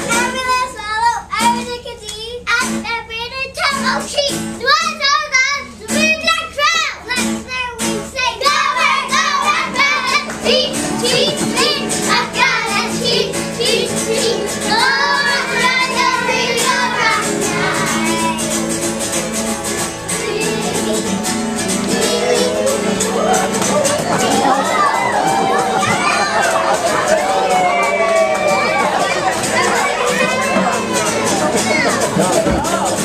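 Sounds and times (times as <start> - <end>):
children singing: 8.2 - 33.0
instrumental accompaniment with beat: 8.5 - 33.0.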